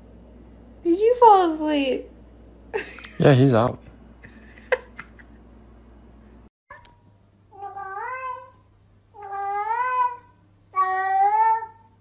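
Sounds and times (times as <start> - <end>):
cat meowing: 7.6 - 8.6, 9.2 - 11.8.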